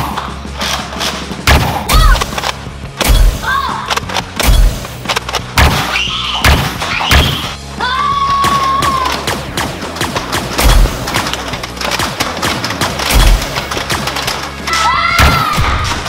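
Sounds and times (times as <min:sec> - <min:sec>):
background music with low drone: 0:00.0 - 0:16.0
sharp heavy blaster shots: 0:01.4 - 0:03.5, 0:04.1 - 0:07.6, 0:08.4 - 0:14.5.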